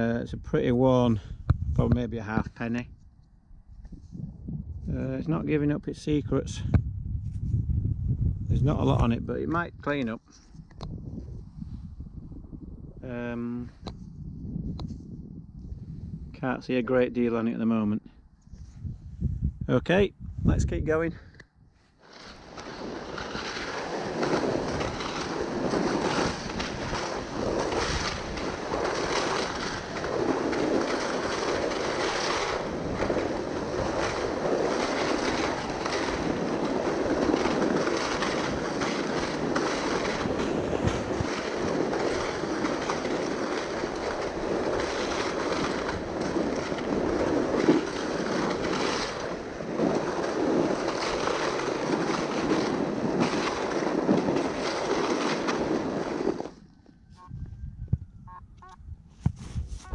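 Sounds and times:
wind on microphone: 0:00.0 - 0:17.3, 0:17.9 - 0:59.9
sled scraping over snow: 0:21.8 - 0:57.7, 0:59.1 - 0:59.9
sled bump: 0:22.0 - 0:56.6.

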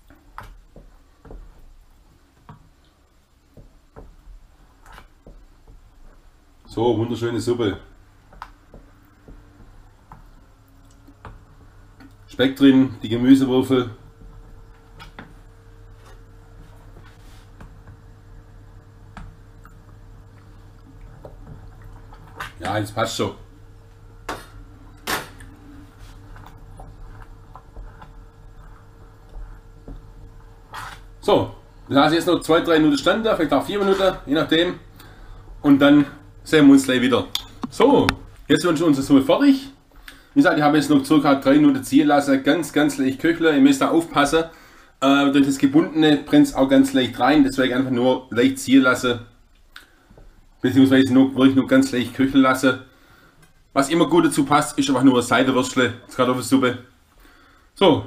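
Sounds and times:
steady low hum: 0:00.0 - 0:58.0
spoon stirring thick soup: 0:08.0 - 0:12.3, 0:14.0 - 0:36.0.

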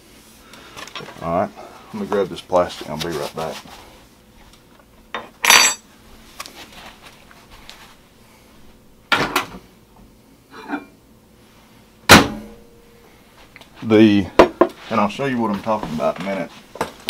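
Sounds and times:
dishes and utensils clinking: 0:05.2 - 0:05.8.

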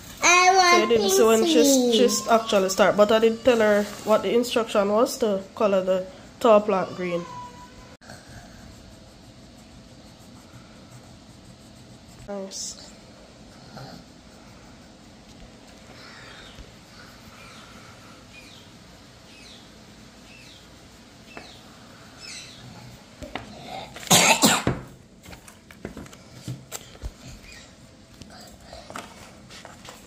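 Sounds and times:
person coughing: 0:23.7 - 0:24.8.

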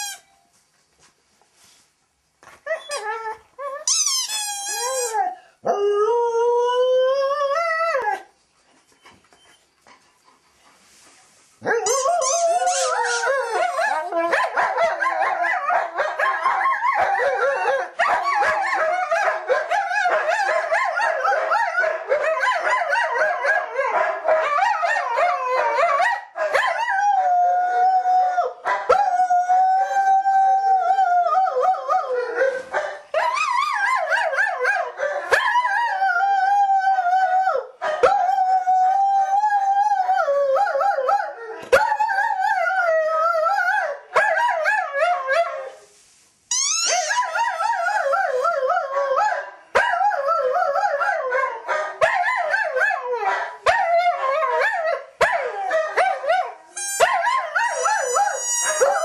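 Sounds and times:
squeaky toy squeaking: 0:00.0 - 0:00.3, 0:03.8 - 0:05.2, 0:11.8 - 0:13.9, 0:46.5 - 0:47.4, 0:56.8 - 0:59.0
dog howling: 0:11.8 - 0:15.9, 0:55.4 - 0:59.0.

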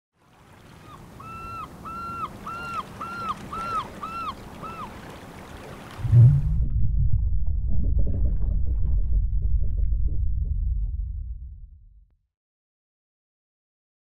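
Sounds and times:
bird calling short notes: 0:00.8 - 0:05.0
deep rumble: 0:06.0 - 0:12.1.

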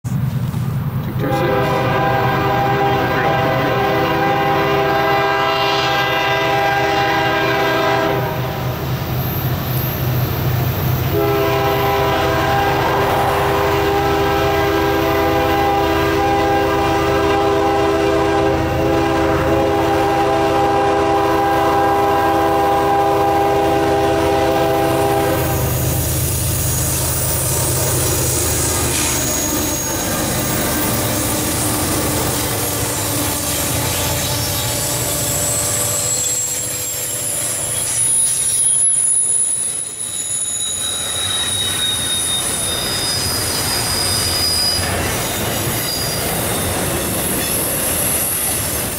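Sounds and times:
train wheel and rail noise: 0:00.0 - 0:48.9
locomotive air horn blasts: 0:01.2 - 0:08.6, 0:11.1 - 0:26.0, 0:27.1 - 0:37.4.

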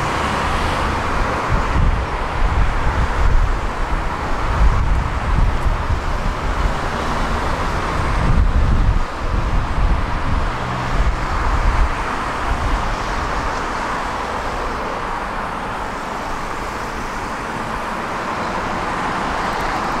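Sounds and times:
street traffic noise: 0:00.0 - 0:20.0.

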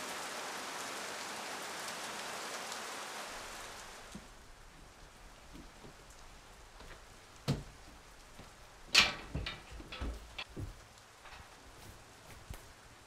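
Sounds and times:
faint rain: 0:00.0 - 0:13.0
knocks and bumps: 0:05.5 - 0:12.7.

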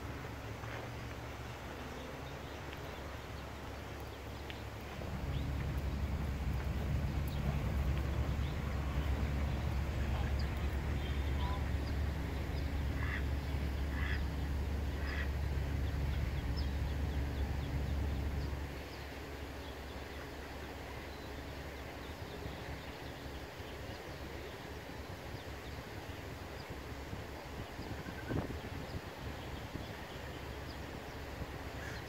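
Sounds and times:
low rumble: 0:00.0 - 0:19.2
ducklings peeping: 0:05.2 - 0:18.5
duck quacking: 0:13.0 - 0:13.2, 0:13.9 - 0:14.2.

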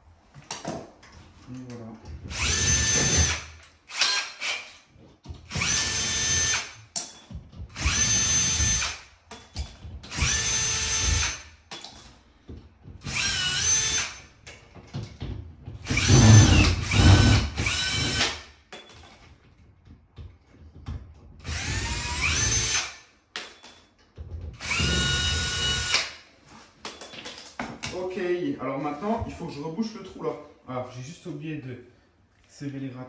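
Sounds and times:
cordless drill motor whine: 0:24.6 - 0:25.9.

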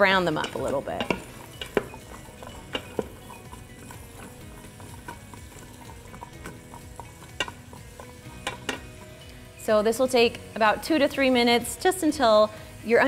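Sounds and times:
vegetables sizzling in butter: 0:00.0 - 0:13.0
spoon knocking against pot: 0:00.3 - 0:09.2.

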